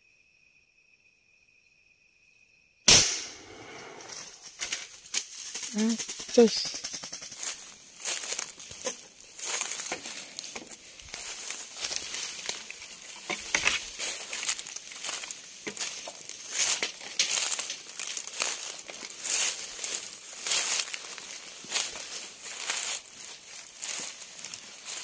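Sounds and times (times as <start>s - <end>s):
footsteps crunching on dry leaves: 7.2s - 25.0s.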